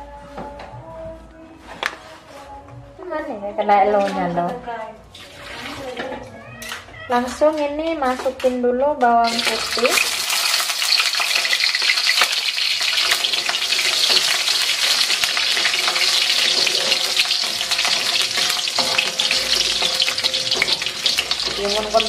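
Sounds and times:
garlic sizzling in hot oil: 0:09.2 - 0:22.0
metal spatula stirring in wok: 0:09.3 - 0:22.0.

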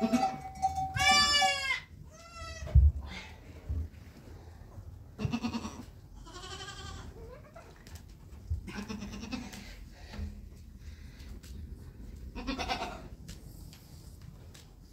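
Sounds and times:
goat kids bleating: 0:00.0 - 0:02.8, 0:05.2 - 0:07.8, 0:08.6 - 0:09.7, 0:12.3 - 0:13.1.

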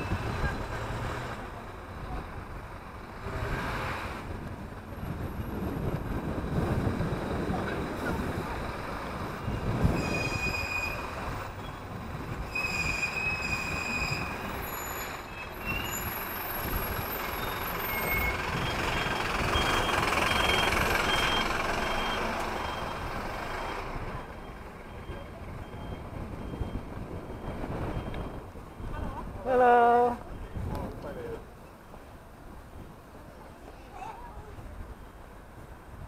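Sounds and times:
bus running: 0:00.0 - 0:36.0
road traffic noise: 0:00.0 - 0:36.0
wind: 0:00.0 - 0:36.0
high-pitched squeals: 0:09.5 - 0:23.9
faint high beep: 0:17.4 - 0:28.9.

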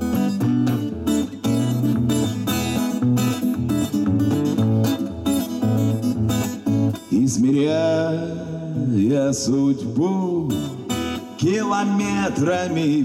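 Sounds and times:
acoustic guitar strumming: 0:00.0 - 0:13.0
man singing: 0:07.0 - 0:13.0.

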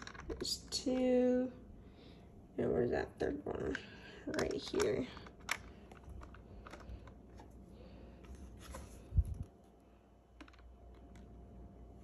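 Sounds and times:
small screws and plastic parts clicking: 0:04.2 - 0:07.2.

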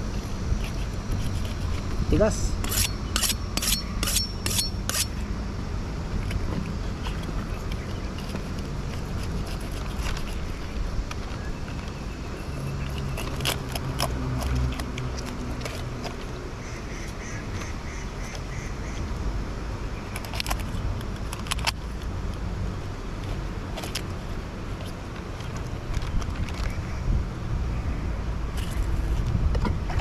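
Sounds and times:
knife scraping fish scales: 0:00.5 - 0:01.9, 0:02.6 - 0:05.2.

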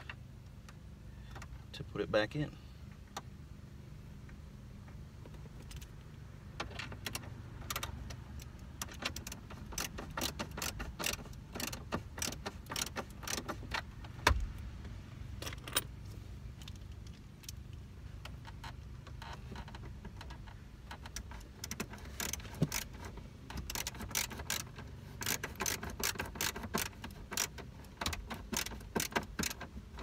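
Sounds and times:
car stereo clicking and rattling: 0:00.0 - 0:03.4, 0:04.2 - 0:14.6, 0:15.4 - 0:30.0.

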